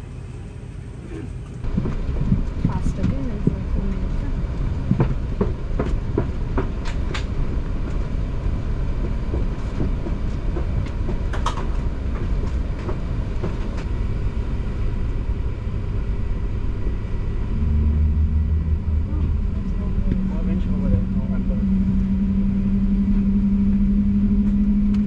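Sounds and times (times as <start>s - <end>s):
airliner cabin low rumble: 0.0s - 25.0s
sharp knocks and rattles: 1.6s - 15.2s.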